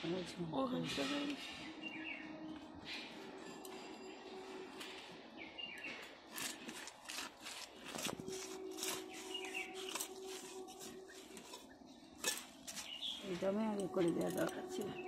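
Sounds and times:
birds chirping faintly: 0:00.0 - 0:06.8, 0:08.2 - 0:15.0
fish scraping against a blade: 0:06.3 - 0:13.1.

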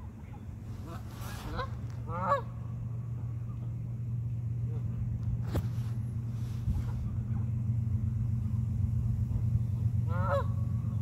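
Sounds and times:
low rumble: 0:00.0 - 0:11.0
goose honk: 0:00.8 - 0:02.5, 0:10.0 - 0:10.7.

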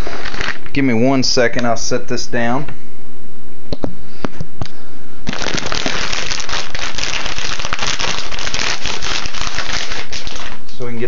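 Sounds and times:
loud crackling rustle: 0:05.3 - 0:10.6.

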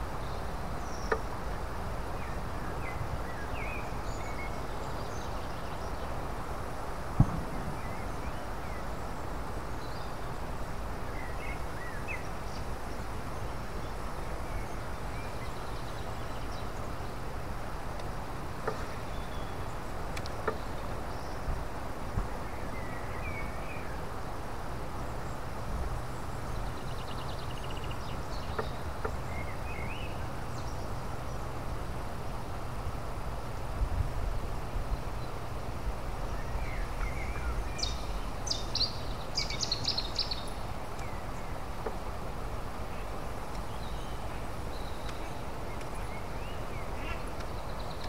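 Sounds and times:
low river background noise: 0:00.0 - 0:48.0
faint clicks: 0:17.9 - 0:19.0, 0:20.1 - 0:20.6, 0:45.0 - 0:46.1, 0:47.1 - 0:47.6.

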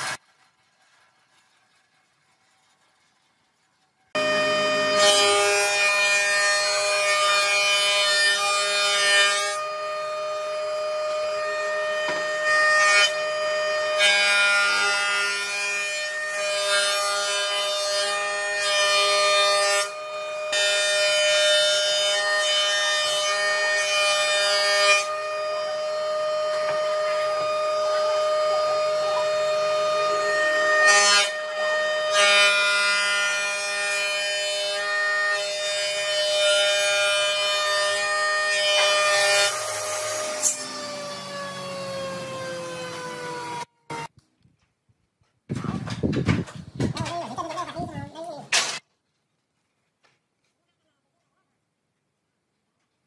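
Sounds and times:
jointer-planer whining: 0:04.2 - 0:07.4, 0:38.7 - 0:44.1.

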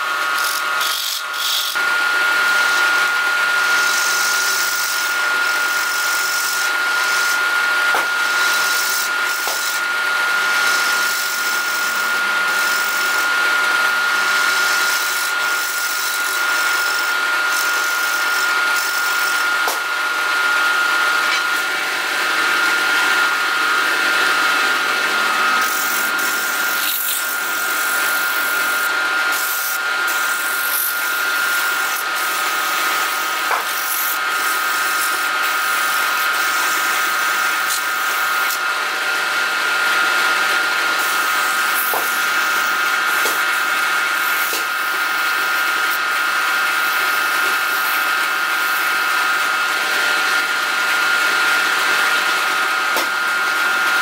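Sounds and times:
wood lathe motor whine: 0:00.0 - 0:54.0
sandpaper on turning wood: 0:00.3 - 0:01.8, 0:03.6 - 0:13.4, 0:14.1 - 0:19.8, 0:25.5 - 0:38.6, 0:41.0 - 0:49.0
turning tool scraping wood: 0:00.3 - 0:01.9, 0:02.5 - 0:38.7, 0:40.7 - 0:49.1.

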